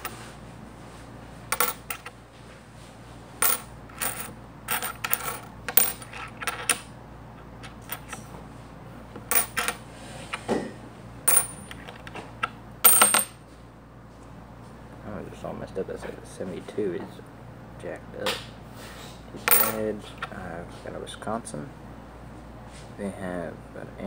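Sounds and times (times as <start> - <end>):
coins clinking on tabletop: 0.0 - 0.2, 1.5 - 2.1, 3.4 - 6.9, 7.6 - 8.3, 9.3 - 9.8, 11.3 - 12.1, 12.8 - 13.4, 19.4 - 19.9.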